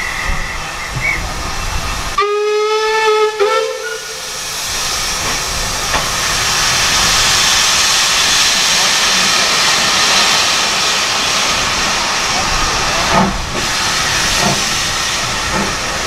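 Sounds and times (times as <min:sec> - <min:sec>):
steam hissing: 0:00.0 - 0:16.0
steam locomotive whistle: 0:02.2 - 0:04.4.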